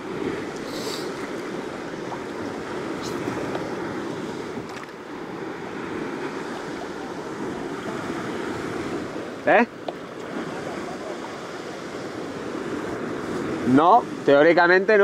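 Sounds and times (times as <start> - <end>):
wind buffeting microphone: 0.0 - 14.7
sea water washing: 0.0 - 15.0
short hisses: 0.6 - 1.2.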